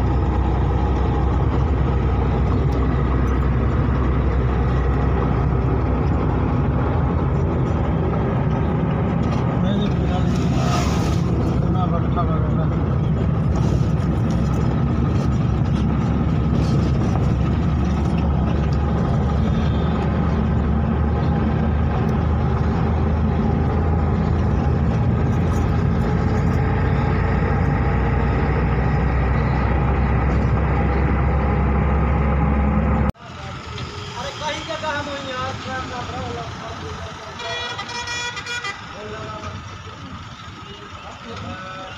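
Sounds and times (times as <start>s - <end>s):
engine and road noise in a cab: 0.0s - 41.9s.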